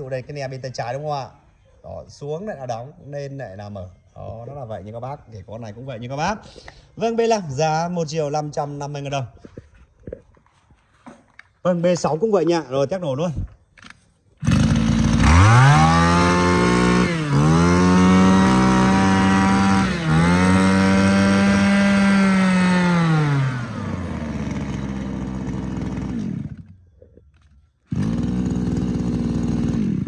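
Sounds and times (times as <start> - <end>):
brush cutter engine revving: 14.4 - 26.8, 27.8 - 30.0.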